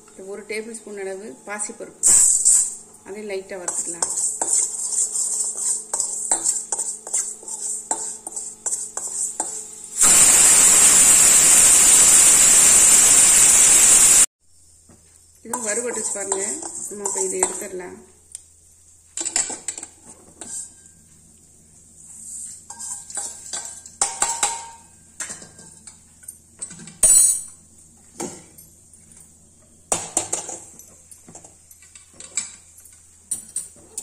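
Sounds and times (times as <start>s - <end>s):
pan scraping: 3.6s - 12.4s
metal pan clanking and knocking: 22.7s - 25.7s.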